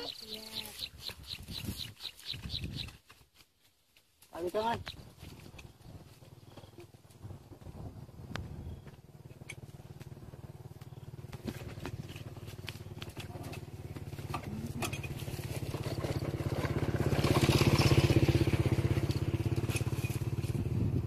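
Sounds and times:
small petrol engine running: 4.7 - 21.0.

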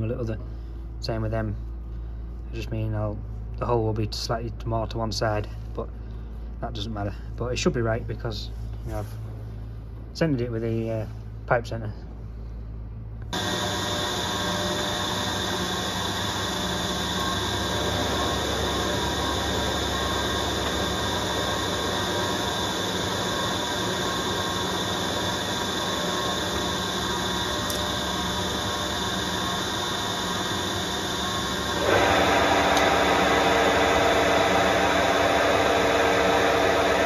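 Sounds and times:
lathe running: 13.4 - 37.0.

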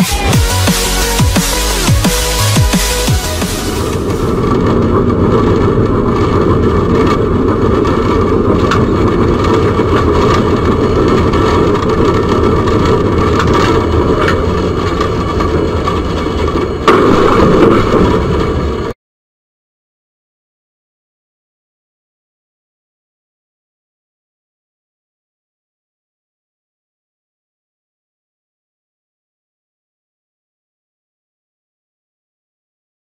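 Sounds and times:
sudden loud noise: 0.0 - 14.2
tram rumbling: 0.0 - 19.0.

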